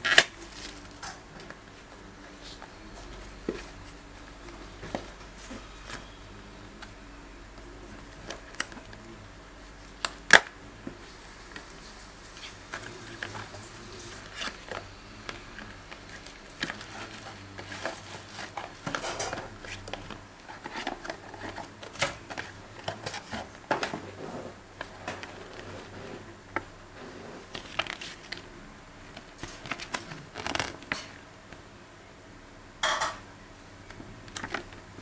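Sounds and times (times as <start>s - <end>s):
plastic crinkling: 9.8s - 24.2s, 27.5s - 28.5s, 29.1s - 31.2s
cardboard scraping and sliding: 16.1s - 26.3s.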